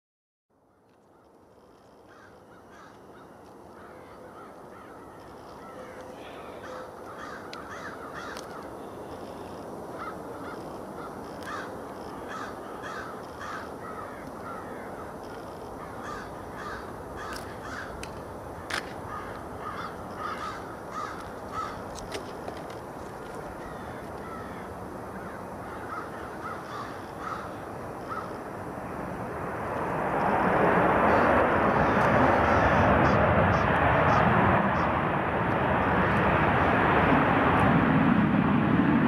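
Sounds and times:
birds cawing: 1.1s - 22.2s, 23.4s - 28.5s
steady rushing noise: 1.3s - 39.0s.

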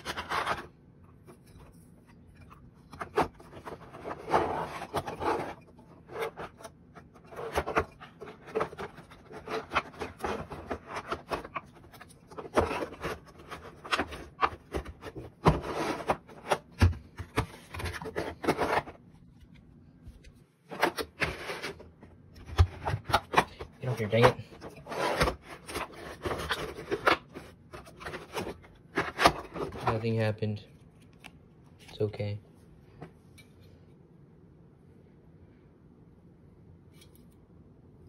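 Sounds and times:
plastic rubbing and scraping: 0.0s - 19.1s, 20.7s - 30.4s.

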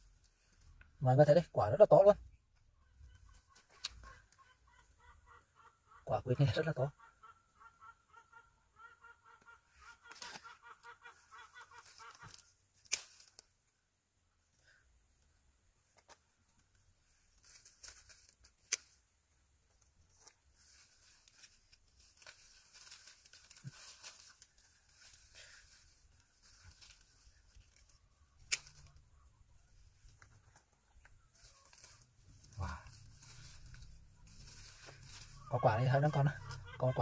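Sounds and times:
leafy branches rustling: 9.8s - 13.8s, 15.9s - 37.0s
pruning shears clicking: 27.7s - 29.0s.

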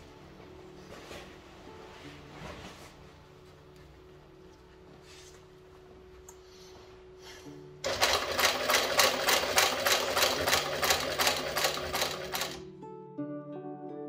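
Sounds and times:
quiet background music: 0.0s - 14.0s
sewing machine stitching: 7.8s - 12.6s.

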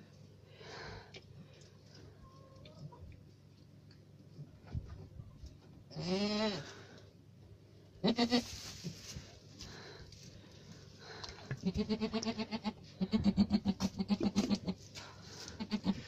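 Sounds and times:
goat bleating: 5.9s - 6.7s, 8.0s - 8.5s, 11.6s - 14.8s, 15.5s - 16.0s.

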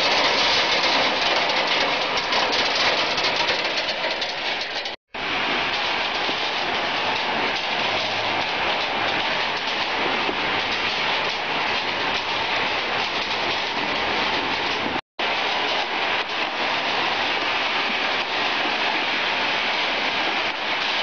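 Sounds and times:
nuts rattling over metal screens: 0.0s - 5.0s.

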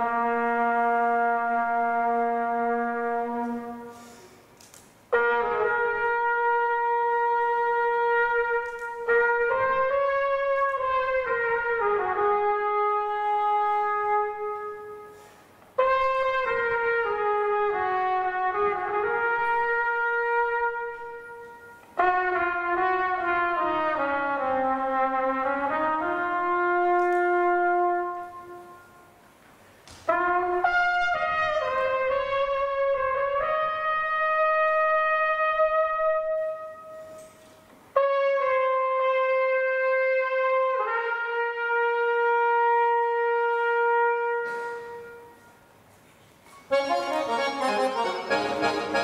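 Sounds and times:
flugelhorn slow melody: 0.0s - 4.3s, 5.1s - 29.4s, 30.1s - 45.9s, 46.7s - 49.0s
accordion: 46.7s - 49.0s.

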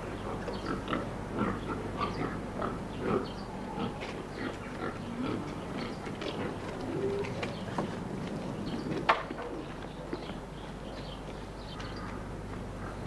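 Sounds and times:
pigs grunting: 0.2s - 7.4s.

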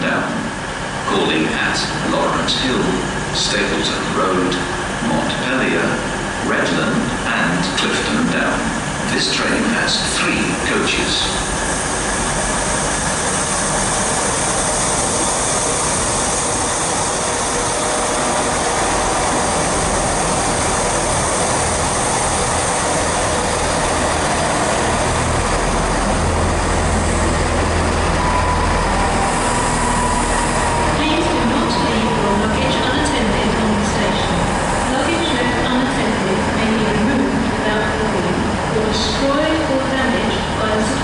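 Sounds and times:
deep engine drone: 0.0s - 40.8s
diesel train engines and wheels rumbling: 0.0s - 41.0s
thin whine: 11.8s - 33.7s.

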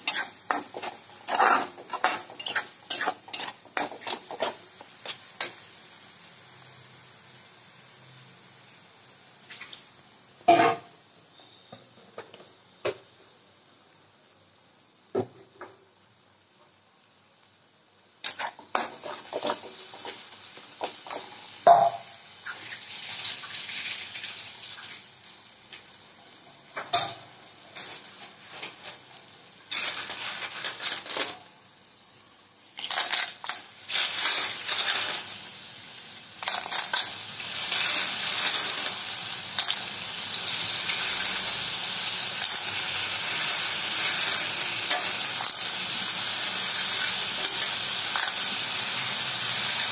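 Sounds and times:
metal spatula scraping a pan: 0.0s - 4.6s, 18.3s - 20.2s, 29.7s - 31.3s, 33.9s - 35.3s
paste sizzling in oil: 0.0s - 10.5s, 17.5s - 49.9s.

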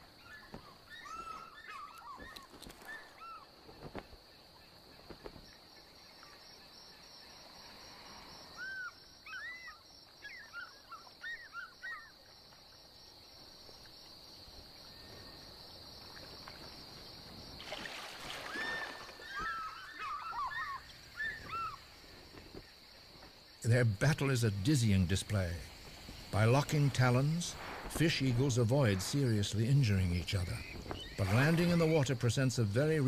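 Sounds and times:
eagles yelping: 0.2s - 3.5s, 18.4s - 21.9s.

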